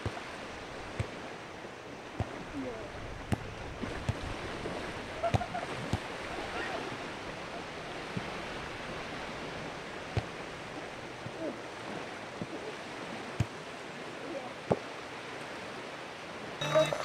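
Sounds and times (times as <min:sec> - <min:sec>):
gentle surf on beach: 0:00.0 - 0:17.0.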